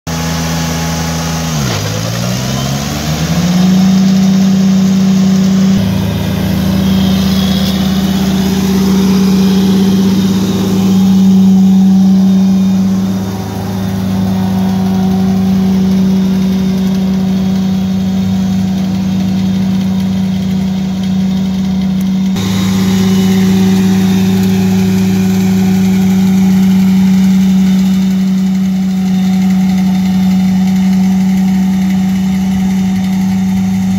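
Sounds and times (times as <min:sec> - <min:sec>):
diesel tractor engine running: 0:00.1 - 0:33.9
grass blower spinning: 0:00.1 - 0:33.9.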